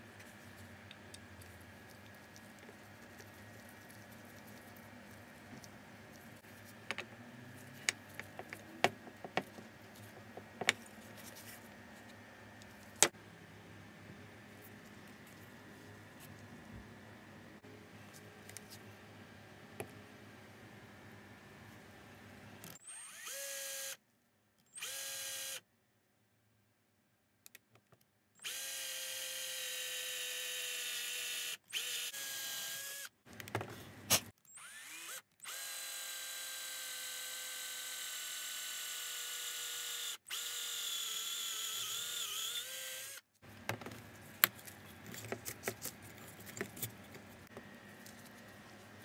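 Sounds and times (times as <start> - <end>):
electric drill boring metal: 34.5 - 43.2.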